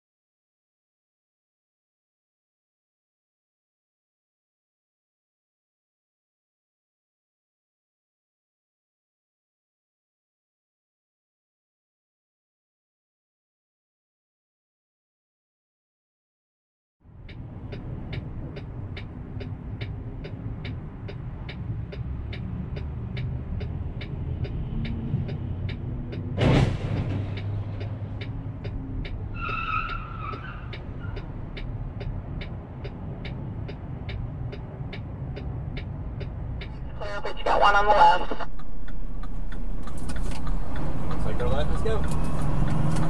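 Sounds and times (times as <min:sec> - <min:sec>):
engine and road rumble: 0:17.0 - 0:43.0
sudden loud bang: 0:26.4 - 0:27.4.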